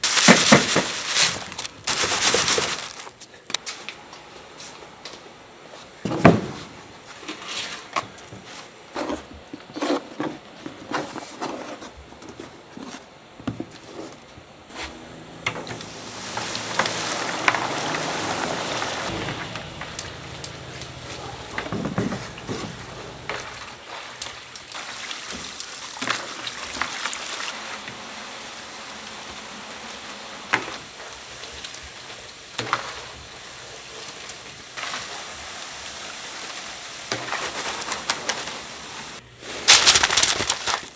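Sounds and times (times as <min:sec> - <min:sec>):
dough sizzling in hot oil: 0:15.8 - 0:21.2, 0:22.2 - 0:39.2.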